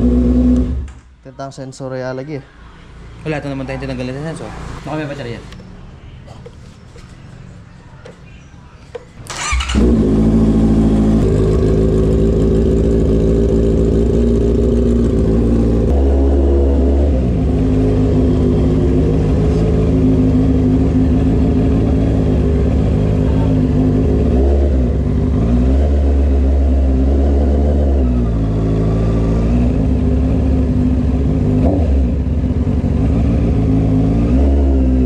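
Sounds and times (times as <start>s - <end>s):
motorcycle engine starting and running: 0.0s - 1.1s, 8.9s - 35.0s.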